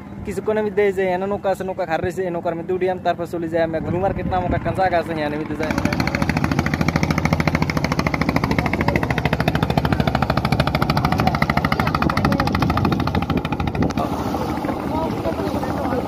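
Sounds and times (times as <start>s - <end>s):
boat engine chugging: 3.9s - 16.0s.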